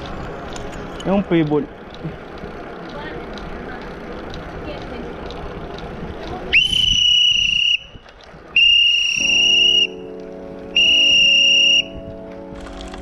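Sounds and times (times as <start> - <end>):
high steady whistle: 6.5 - 10.1, 10.7 - 12.0
background music: 9.2 - 13.0.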